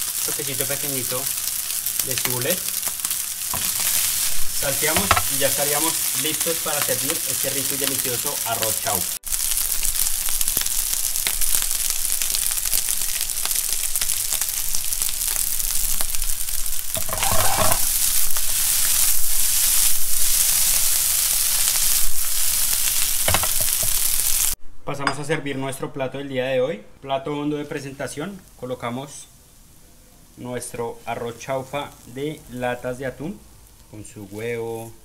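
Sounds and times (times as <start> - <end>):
stirring in a pan: 0.0 - 24.2
rice sizzling in a frying pan: 0.0 - 24.6, 27.5 - 35.0.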